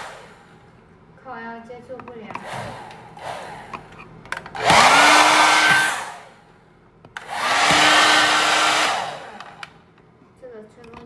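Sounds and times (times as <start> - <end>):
hair dryer motor whine: 0.0 - 0.6, 2.3 - 3.9, 4.6 - 6.4, 7.2 - 9.8.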